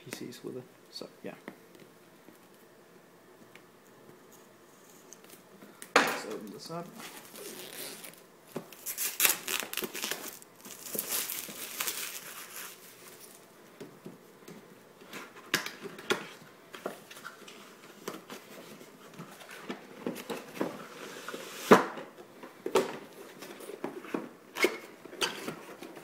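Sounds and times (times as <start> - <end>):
plastic wrap crinkling and tearing: 6.8 - 13.4.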